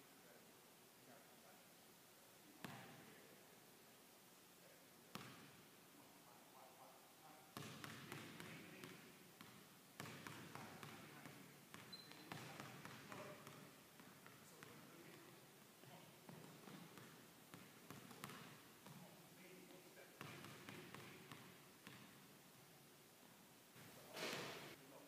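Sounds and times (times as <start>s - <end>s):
basketball dribbling on wooden floor: 16.3s - 19.0s.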